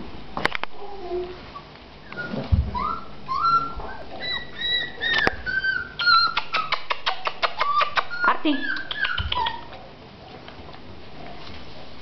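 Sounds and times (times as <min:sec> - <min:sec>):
puppies squeaking and yipping: 0:00.8 - 0:09.8.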